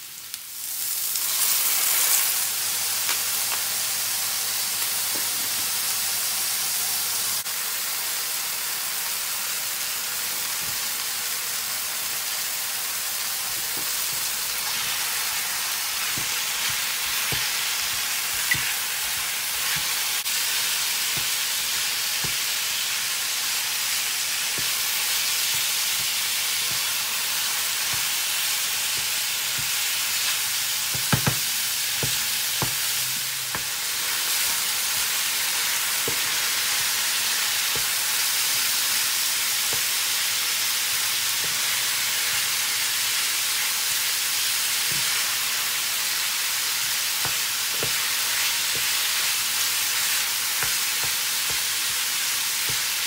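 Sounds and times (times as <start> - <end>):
food sizzling in a frying pan: 0.0 - 53.0
wooden spatula knocking on pan: 16.1 - 19.9, 30.9 - 32.9, 37.7 - 38.0, 47.2 - 48.1.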